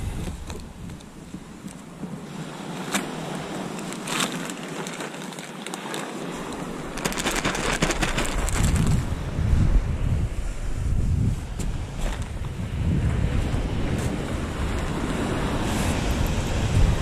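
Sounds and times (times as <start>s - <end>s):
wind buffeting microphone: 0.0s - 4.1s, 6.2s - 17.0s
sea waves: 0.0s - 17.0s
wind: 0.0s - 17.0s
crackling clicks: 3.7s - 9.0s.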